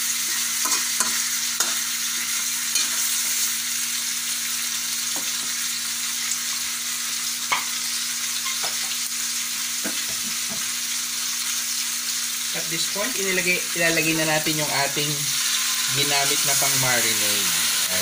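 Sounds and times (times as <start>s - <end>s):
meat sizzling in oil: 0.0s - 18.0s
spatula stirring in a wok: 0.2s - 1.8s.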